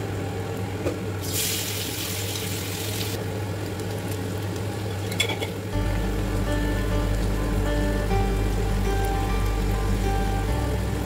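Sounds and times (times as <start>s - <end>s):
potatoes sizzling in hot oil: 1.2s - 11.0s.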